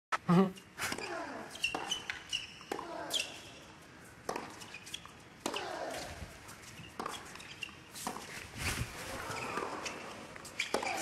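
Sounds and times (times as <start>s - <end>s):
tennis racket hitting ball: 4.2s - 6.2s, 10.6s - 11.0s.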